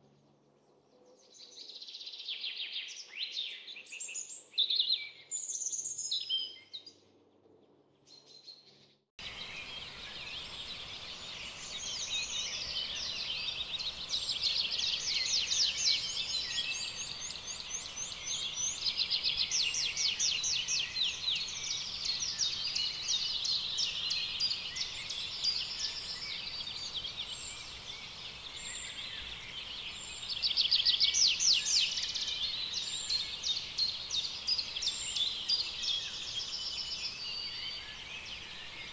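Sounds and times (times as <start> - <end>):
faint steady outdoor hiss: 9.2 - 38.9.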